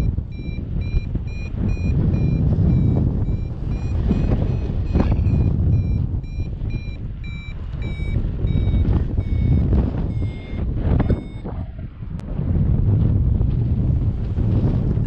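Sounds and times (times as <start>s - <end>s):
variometer short beeps: 0.0s - 11.7s
wind rushing over microphone: 0.0s - 15.0s.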